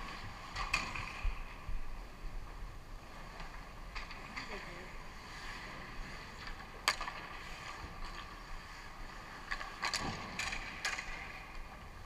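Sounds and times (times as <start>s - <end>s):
hockey sticks and puck clacking: 0.0s - 1.6s, 6.4s - 8.6s, 9.2s - 12.0s
indoor rink hum: 0.0s - 12.0s.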